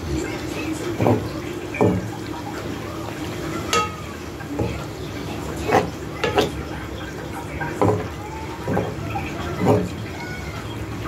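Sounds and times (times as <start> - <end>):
utensil stirring pasta in a pan: 0.0 - 11.0
utensil knocking against pan: 3.7 - 4.0.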